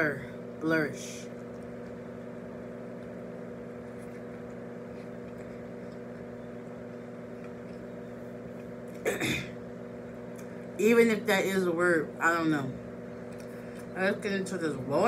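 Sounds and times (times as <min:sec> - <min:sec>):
mechanical hum: 0:00.0 - 0:15.0.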